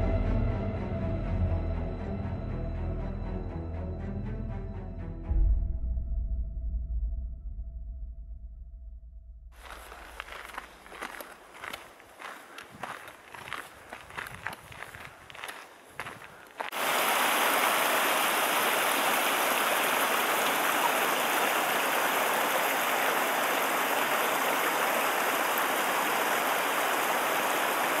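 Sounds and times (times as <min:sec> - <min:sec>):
faint footsteps: 0:09.6 - 0:16.8
mountain stream rushing: 0:09.6 - 0:28.0.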